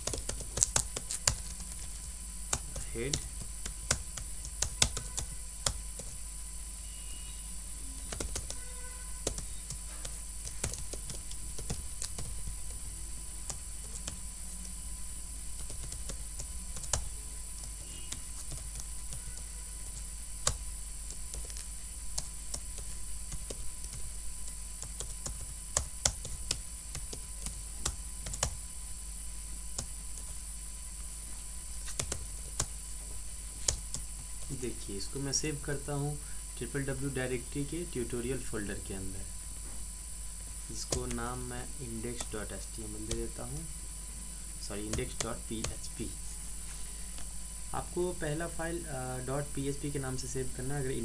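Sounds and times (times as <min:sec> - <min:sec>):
keyboard typing: 0:00.0 - 0:06.2, 0:08.0 - 0:14.8, 0:15.5 - 0:28.6, 0:31.8 - 0:32.8, 0:33.6 - 0:34.5, 0:40.8 - 0:41.2, 0:44.8 - 0:45.8
background hum and hiss: 0:00.0 - 0:51.0.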